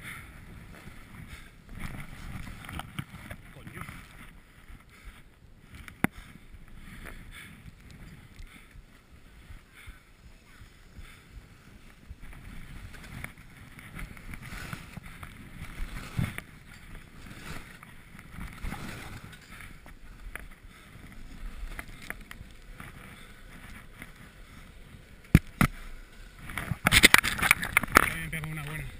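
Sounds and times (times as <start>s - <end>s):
skis scraping: 0.1s - 28.9s
skis hissing through snow: 10.2s - 16.4s, 17.0s - 18.0s, 18.6s - 19.5s.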